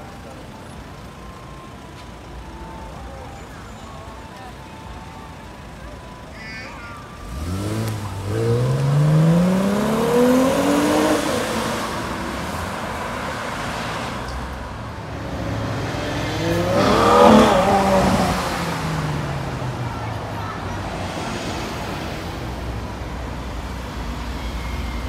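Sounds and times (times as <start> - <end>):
sports car engine revving: 7.2 - 19.8
car accelerating away: 7.2 - 23.0.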